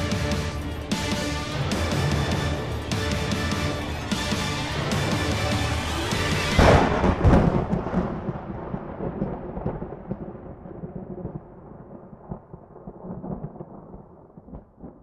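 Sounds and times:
heavy cinematic boom: 0:00.0 - 0:09.9
low rumble like thunder: 0:06.5 - 0:15.0.

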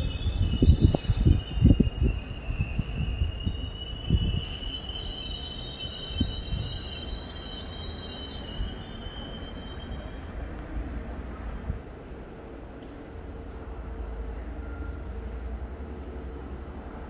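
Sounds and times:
train brakes squealing: 0:00.0 - 0:10.6, 0:14.5 - 0:15.3
train rumble: 0:00.0 - 0:17.0.

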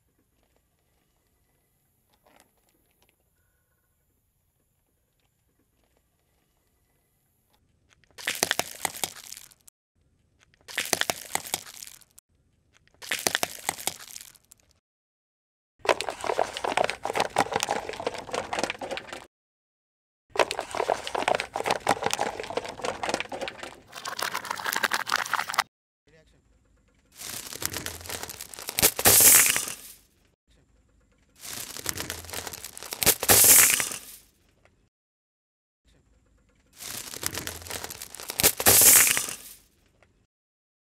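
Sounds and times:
plastic containers crackling under tyre: 0:08.1 - 0:09.7, 0:10.6 - 0:12.2, 0:13.0 - 0:14.6, 0:15.8 - 0:19.3, 0:20.4 - 0:25.6, 0:27.2 - 0:30.0, 0:31.4 - 0:34.2, 0:36.8 - 0:39.6.

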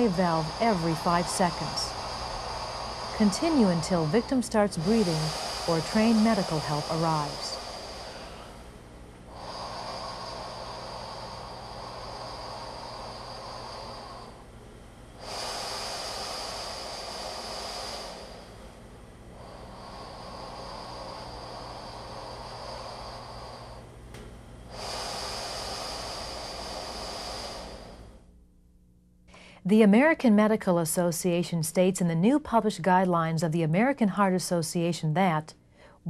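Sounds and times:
breaths blown through mask valve: 0:00.0 - 0:14.4, 0:15.2 - 0:18.7, 0:24.7 - 0:28.2.

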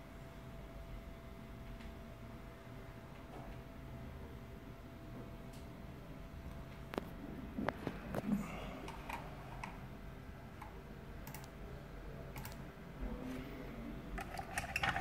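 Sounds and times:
computer keyboard clicks: 0:10.6 - 0:11.6, 0:12.4 - 0:12.6.

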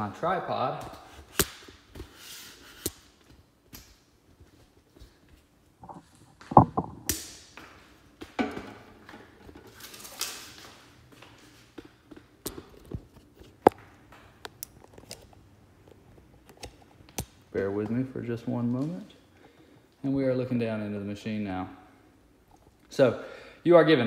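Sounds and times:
scraping and rustling: 0:05.8 - 0:07.1
tripod knocks and clicks: 0:05.8 - 0:07.2.

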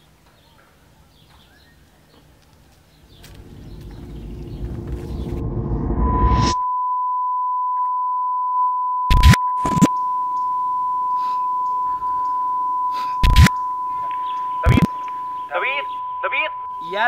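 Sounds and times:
rush of noise rising in pitch: 0:03.2 - 0:06.6
high-pitched ringing tone: 0:03.3 - 0:17.0.

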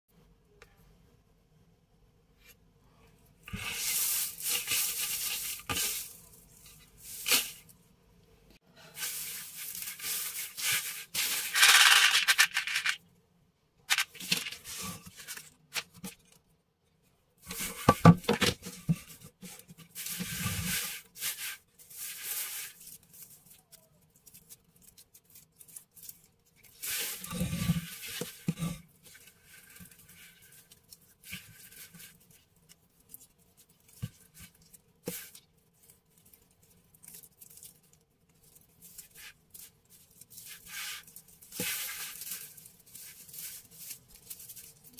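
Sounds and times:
raffia rustling and crackling: 0:08.8 - 0:13.0, 0:13.8 - 0:16.4, 0:17.4 - 0:44.9.

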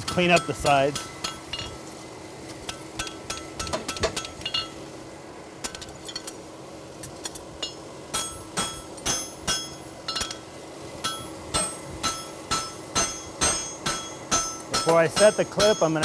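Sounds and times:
hammer striking steel on anvil: 0:00.0 - 0:01.8, 0:02.6 - 0:04.8, 0:07.6 - 0:16.0.

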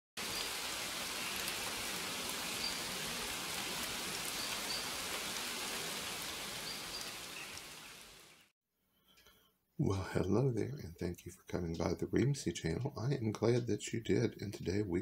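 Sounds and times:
steady rain hiss: 0:00.2 - 0:08.5.

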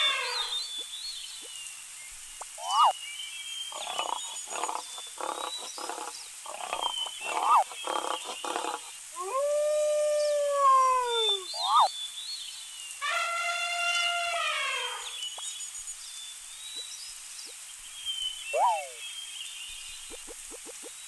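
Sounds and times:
faint bird chirps: 0:00.0 - 0:21.0
wolf howling: 0:09.2 - 0:11.8.

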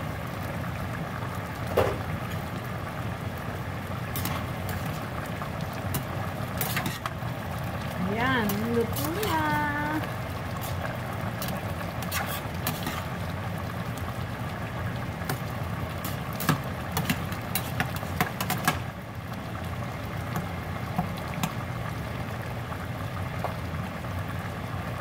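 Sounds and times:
spoon clinking and scraping pot: 0:16.0 - 0:18.7.

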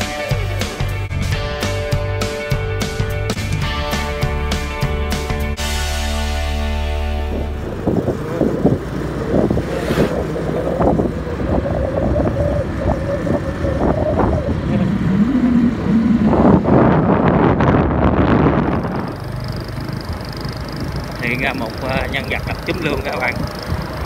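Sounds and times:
motorbike engine running: 0:07.1 - 0:24.0
wind buffeting microphone: 0:07.2 - 0:24.0.

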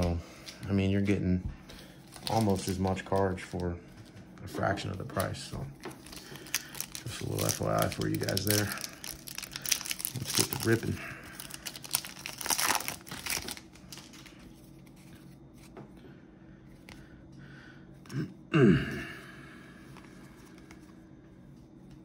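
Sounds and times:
foil wrapper tearing and crinkling: 0:02.1 - 0:03.6, 0:05.1 - 0:14.6.

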